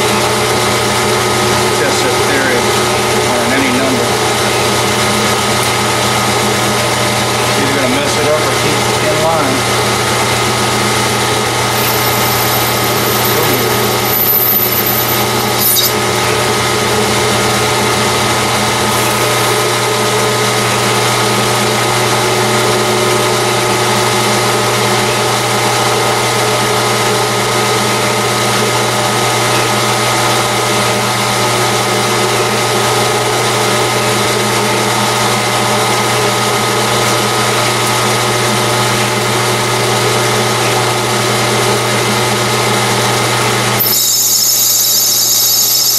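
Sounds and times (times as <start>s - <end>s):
metal lathe motor hum: 0.0s - 45.9s
thin high whine: 11.6s - 16.3s, 43.8s - 45.9s.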